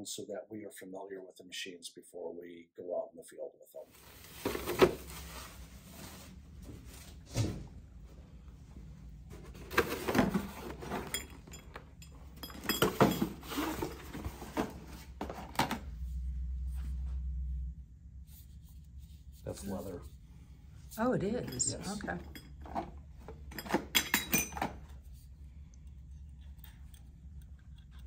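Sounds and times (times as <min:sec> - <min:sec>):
cardboard and foam rustling: 0:03.9 - 0:07.6, 0:09.3 - 0:11.2
steady low hum: 0:15.8 - 0:23.6, 0:24.2 - 0:28.0.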